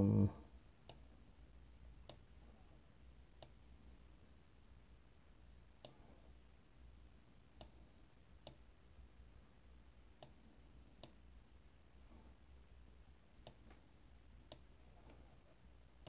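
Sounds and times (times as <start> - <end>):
computer mouse clicks: 2.0 - 2.3, 3.4 - 3.6, 5.8 - 6.0, 7.6 - 7.8, 8.4 - 8.7, 10.2 - 10.4, 11.0 - 11.2, 13.4 - 13.8, 14.4 - 14.8.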